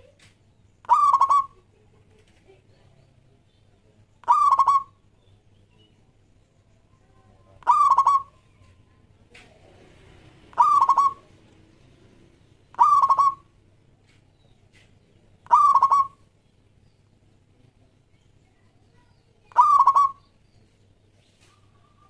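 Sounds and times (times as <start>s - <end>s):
dove cooing: 0.8s - 1.7s, 4.2s - 5.0s, 7.5s - 8.4s, 10.5s - 11.4s, 12.7s - 13.5s, 15.4s - 16.2s, 19.5s - 20.3s.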